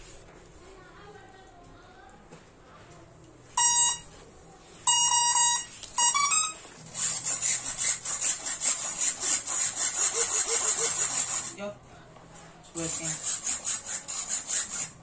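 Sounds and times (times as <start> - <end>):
electronic start-up beeps: 3.6 - 4.1, 4.9 - 6.6.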